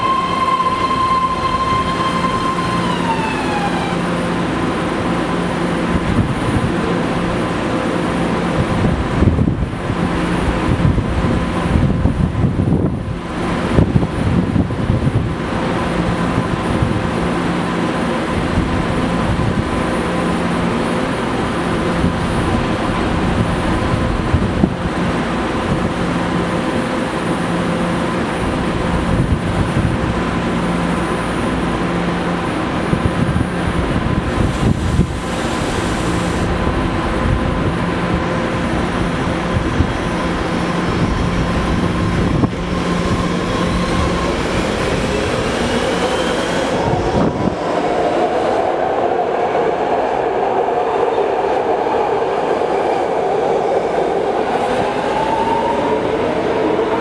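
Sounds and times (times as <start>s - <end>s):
high hiss: 34.2s - 36.5s.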